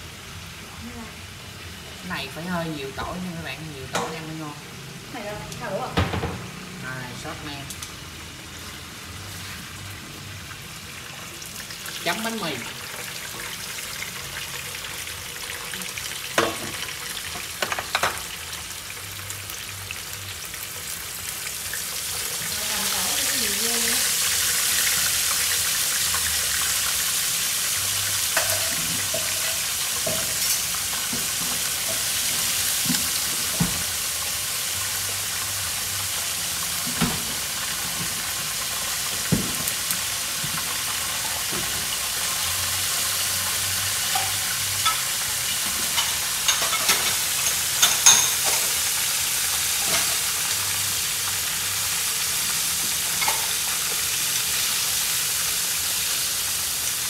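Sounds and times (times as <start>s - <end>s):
food sizzling in hot oil: 0.0s - 57.0s.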